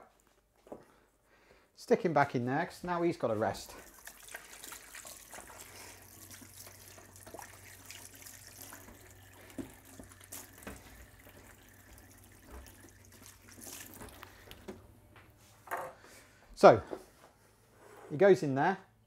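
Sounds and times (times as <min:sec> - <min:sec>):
faint tap water running: 0:02.7 - 0:16.0
low steady hum: 0:03.6 - 0:15.7.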